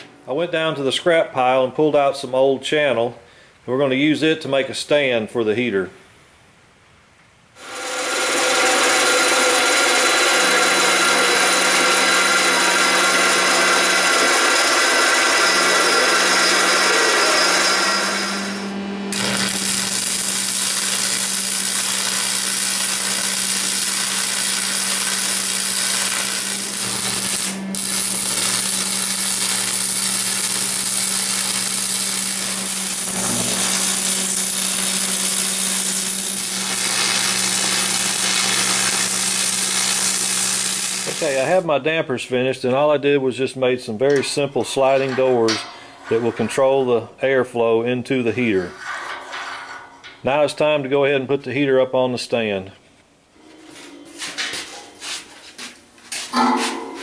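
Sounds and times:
band saw cutting steel: 0:07.6 - 0:41.6
arc welding crackling hiss: 0:18.0 - 0:41.6.

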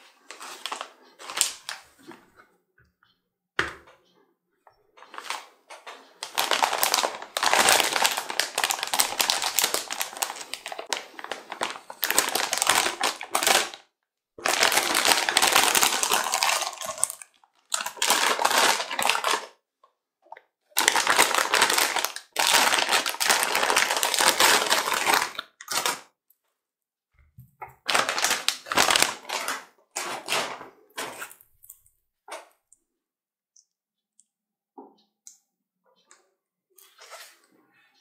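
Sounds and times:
plastic bag crinkling: 0:00.3 - 0:01.8, 0:06.2 - 0:13.8, 0:14.4 - 0:19.5, 0:20.8 - 0:26.0, 0:27.8 - 0:31.4.

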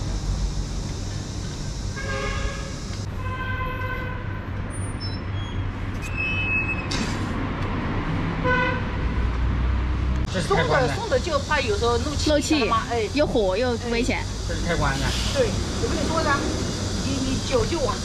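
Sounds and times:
street traffic rumbling: 0:00.0 - 0:18.0
vehicle horn toots: 0:02.0 - 0:04.3, 0:08.4 - 0:08.9.

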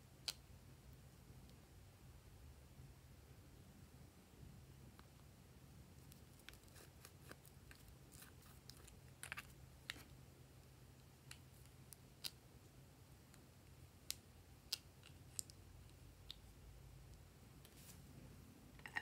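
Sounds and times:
low steady hum: 0:00.0 - 0:19.0
plastic spatula scooping balm: 0:06.0 - 0:10.2.

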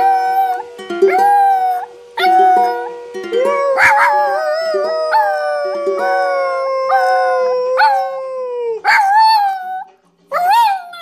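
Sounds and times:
plucked ukulele notes: 0:00.0 - 0:08.1
dog howling: 0:00.0 - 0:11.0.

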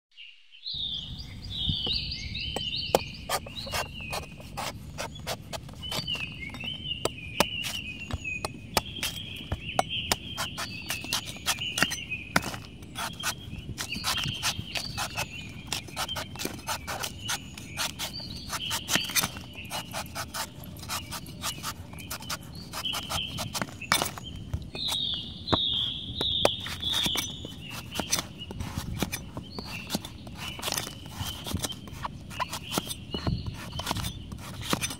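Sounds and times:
birds chirping: 0:00.2 - 0:34.9
cleaver chopping coconut husk: 0:02.6 - 0:25.0, 0:26.2 - 0:34.9.

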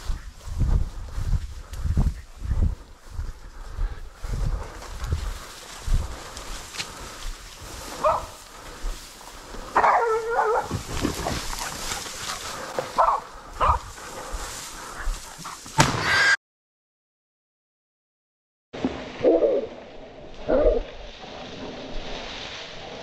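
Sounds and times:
rustling through long grass: 0:00.0 - 0:15.7, 0:18.9 - 0:23.0
wind: 0:00.0 - 0:16.4, 0:18.7 - 0:23.0
dogs yelping and barking: 0:08.0 - 0:08.3, 0:09.8 - 0:13.8.

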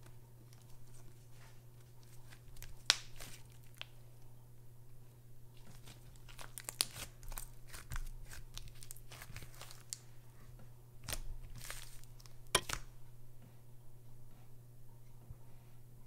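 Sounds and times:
slime crackling and popping: 0:02.5 - 0:04.0, 0:05.6 - 0:10.0.

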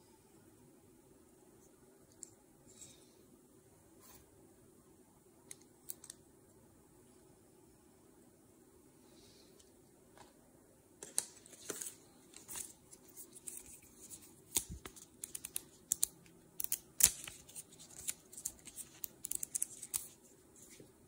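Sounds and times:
booklet pages flipping: 0:11.0 - 0:20.9
paper and card rustling: 0:11.0 - 0:20.9.

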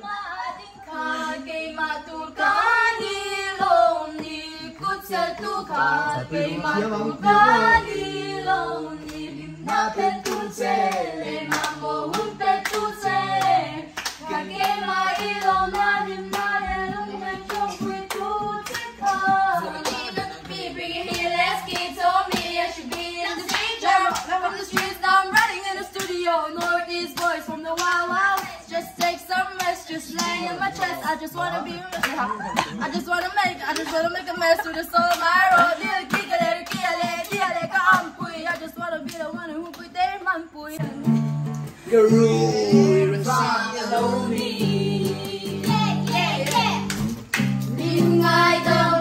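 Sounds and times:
woman singing: 0:00.0 - 0:41.4, 0:42.1 - 0:46.8, 0:47.7 - 0:49.0
hand clapping: 0:07.8 - 0:39.9, 0:45.2 - 0:48.0.

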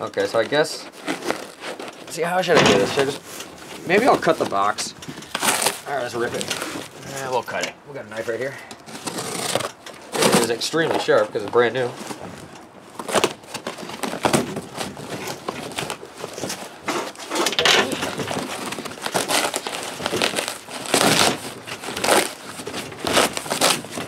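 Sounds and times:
cardboard box cut and torn: 0:00.5 - 0:02.1, 0:05.3 - 0:06.9, 0:08.9 - 0:11.1, 0:13.0 - 0:24.0.

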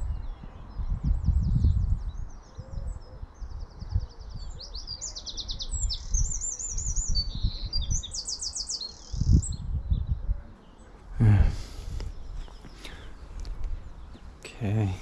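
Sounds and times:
robin singing: 0:00.0 - 0:15.0.

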